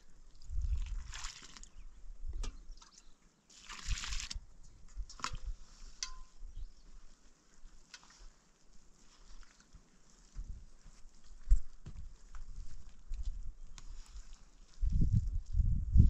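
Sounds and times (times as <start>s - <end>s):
water pouring into flour: 3.5s - 4.4s
metal bowl clicking: 5.0s - 6.3s.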